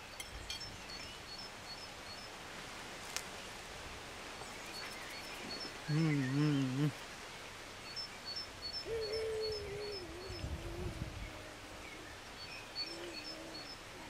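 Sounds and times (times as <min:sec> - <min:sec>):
songbird high chirps: 0:04.4 - 0:07.0, 0:07.8 - 0:10.5
dove cooing: 0:05.8 - 0:07.0, 0:08.8 - 0:11.8, 0:12.8 - 0:14.0.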